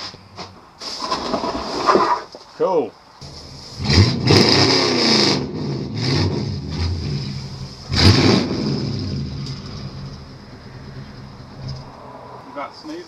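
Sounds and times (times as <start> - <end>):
vehicle engine surging: 3.2 - 12.6.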